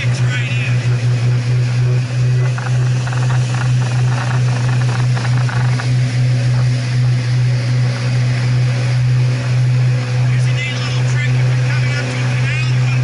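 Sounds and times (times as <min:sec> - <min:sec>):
boat engine drone: 0:00.0 - 0:13.0.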